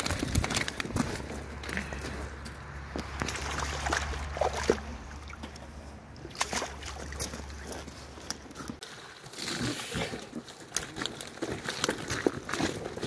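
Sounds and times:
water splashing: 2.7s - 13.0s.

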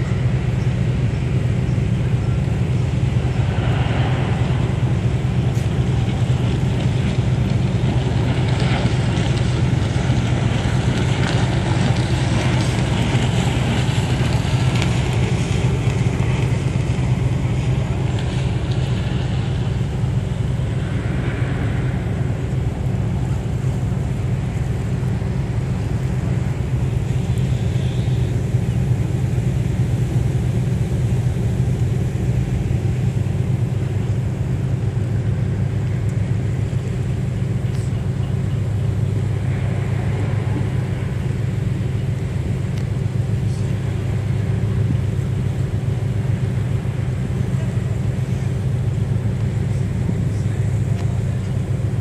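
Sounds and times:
wind and water rushing: 0.0s - 37.5s, 38.8s - 52.0s
ferry engines humming: 0.0s - 52.0s.

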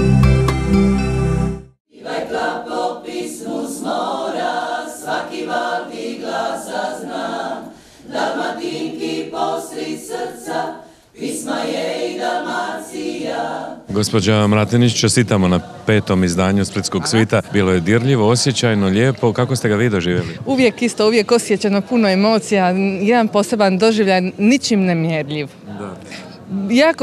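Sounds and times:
women's choir singing: 1.9s - 13.9s, 15.0s - 18.4s.

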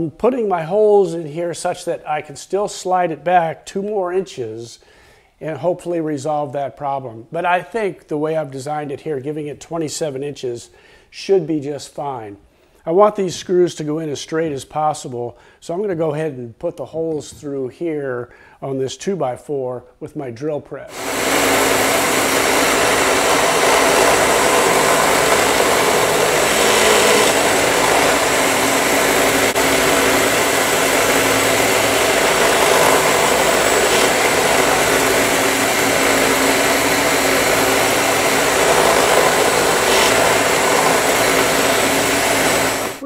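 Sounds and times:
drill press running: 20.9s - 43.0s
shop vacuum running: 20.9s - 43.0s.

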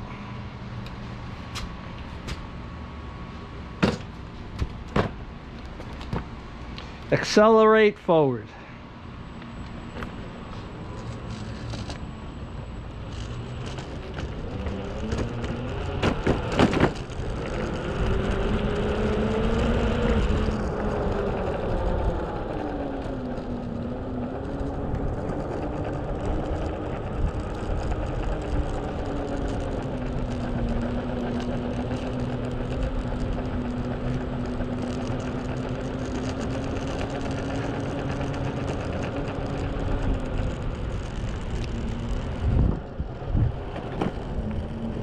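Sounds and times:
rubber wheels rumbling on asphalt: 0.0s - 45.0s
electric skateboard motor whining: 9.1s - 45.0s.

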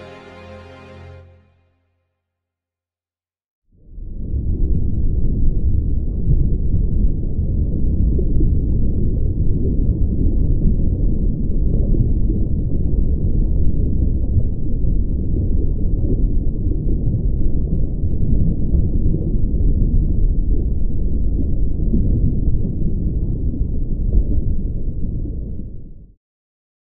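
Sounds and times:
muffled underwater rumble: 3.8s - 26.2s.

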